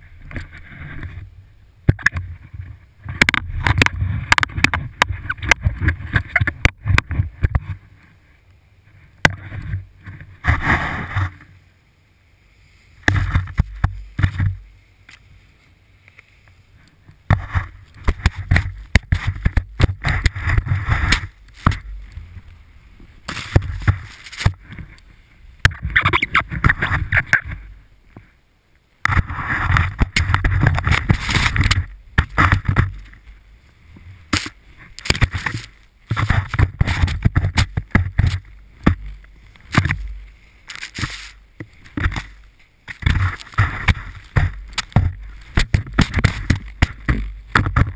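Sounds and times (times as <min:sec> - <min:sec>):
wind on camera microphone: 0:00.0 - 0:11.6, 0:16.7 - 0:28.3, 0:29.0 - 0:47.9
skis scraping through snow: 0:09.0 - 0:11.7, 0:12.3 - 0:27.8, 0:29.1 - 0:47.9.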